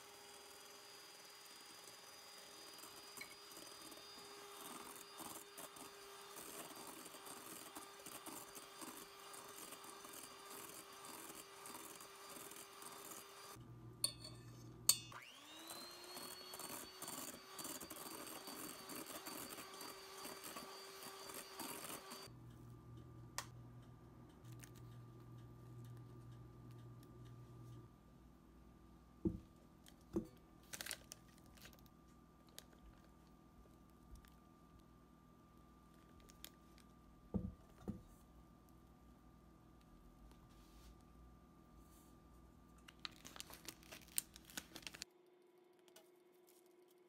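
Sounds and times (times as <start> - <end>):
electric hand mixer whining: 0.0 - 13.6, 15.2 - 22.3.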